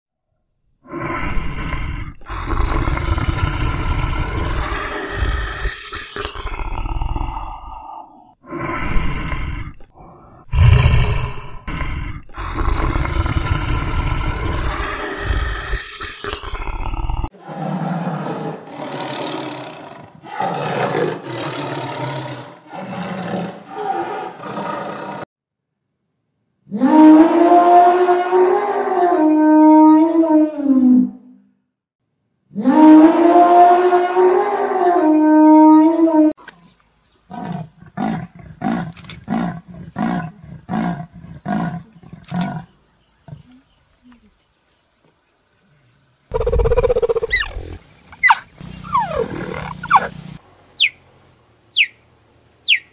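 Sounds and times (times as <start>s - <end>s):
tiger growling and roaring: 0.8s - 25.3s, 37.2s - 43.7s, 46.3s - 50.2s
elephant trumpeting: 48.2s - 50.2s
leopard rasping sawing call: 48.2s - 51.0s.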